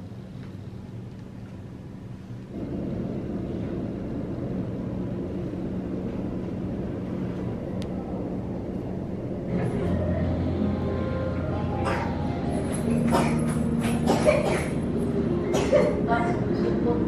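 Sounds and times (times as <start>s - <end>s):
low mechanical droning hum: 0.0s - 17.0s.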